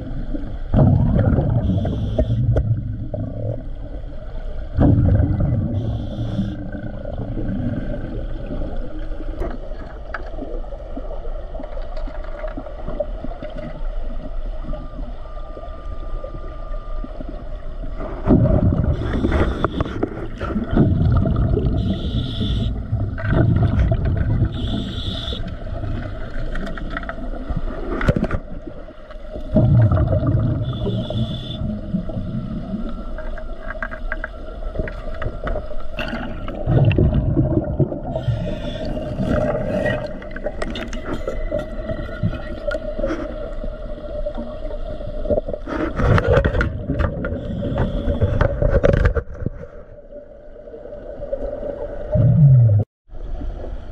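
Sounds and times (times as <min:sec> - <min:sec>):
exhaled bubbles gurgling underwater: 0:00.0 - 0:53.9
short steady tone: 0:01.6 - 0:02.8, 0:05.6 - 0:06.7, 0:21.8 - 0:22.9, 0:24.4 - 0:25.6, 0:30.4 - 0:32.0
diver breathing through regulator: 0:05.8 - 0:06.8, 0:18.8 - 0:20.7, 0:21.7 - 0:22.9, 0:24.5 - 0:25.6, 0:38.0 - 0:40.3, 0:47.2 - 0:48.8.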